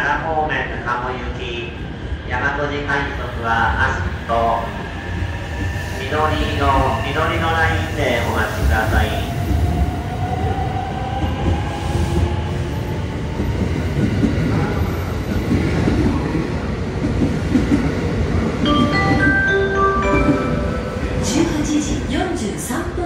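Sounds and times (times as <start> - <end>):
train wheels rumbling on rails: 3.1 - 23.0
chime tones: 18.7 - 21.3.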